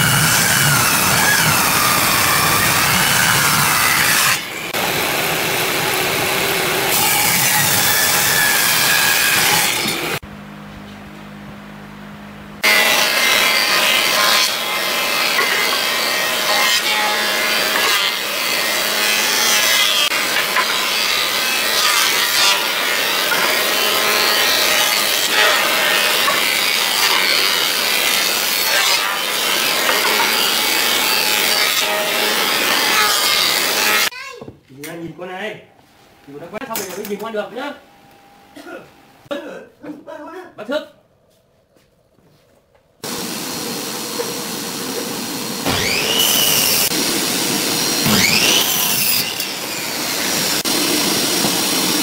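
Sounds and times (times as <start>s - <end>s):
thickness planer shaving wood: 12.6s - 34.1s.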